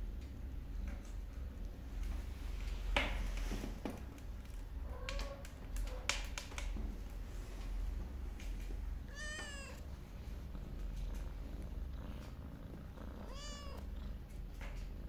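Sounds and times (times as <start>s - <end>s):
low steady hum: 0.0s - 15.0s
cat meowing: 9.1s - 9.8s, 13.2s - 13.8s.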